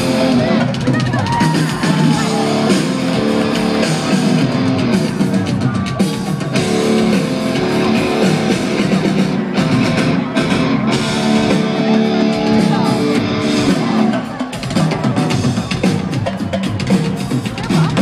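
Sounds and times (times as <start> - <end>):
pounding drum kit: 0.0 - 18.0
sustained guitar chords: 2.2 - 5.4, 6.4 - 14.5.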